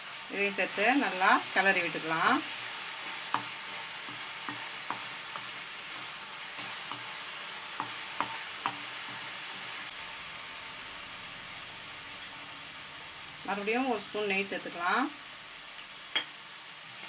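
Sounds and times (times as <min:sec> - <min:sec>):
food sizzling in ghee: 0:00.0 - 0:17.0
wooden spatula stirring: 0:00.8 - 0:09.9
spatula knocking against pan: 0:03.3 - 0:05.5, 0:07.8 - 0:08.9.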